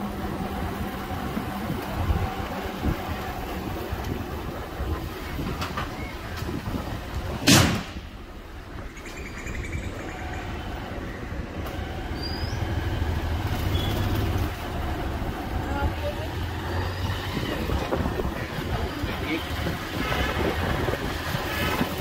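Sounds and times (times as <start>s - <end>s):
motorcycle engine riding: 0.0s - 7.4s, 9.9s - 22.0s
sharp loud thump: 7.4s - 8.1s.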